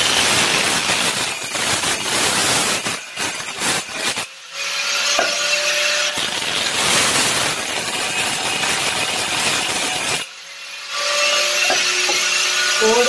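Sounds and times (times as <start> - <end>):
angle grinder cutting marble: 0.0 - 13.0
grinder motor whine: 4.7 - 7.5, 10.9 - 13.0.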